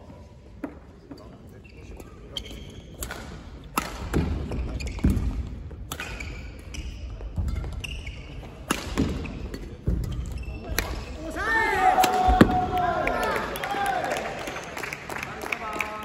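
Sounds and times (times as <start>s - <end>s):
shoe squeaks: 1.2s - 3.0s, 4.5s - 5.1s, 6.0s - 8.6s, 10.0s - 10.7s
racket hitting shuttlecock: 3.0s - 6.3s, 8.6s - 10.0s.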